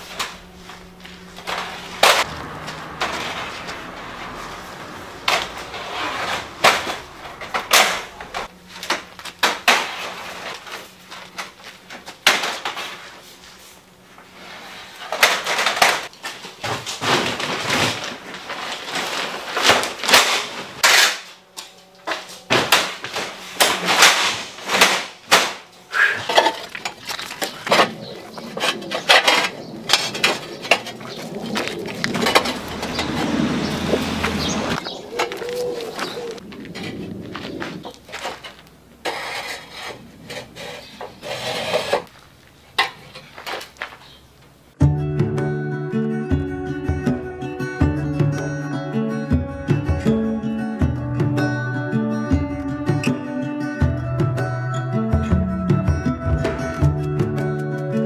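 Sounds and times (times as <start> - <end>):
roof tiles clinking and clattering: 22.1 - 44.2.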